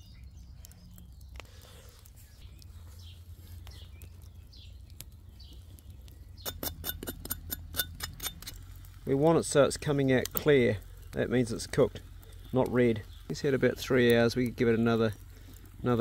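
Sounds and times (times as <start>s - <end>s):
wood fire crackling: 0.0s - 16.0s.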